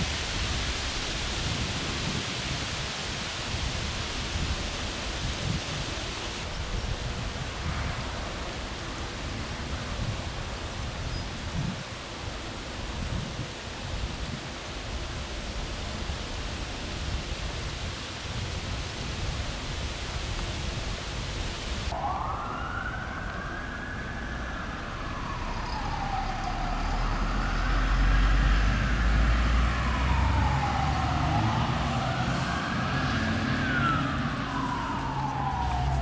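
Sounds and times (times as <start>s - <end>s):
steady hiss: 0.0s - 22.0s
emergency vehicle siren wailing: 21.9s - 36.0s
low vehicle rumble: 21.9s - 36.0s.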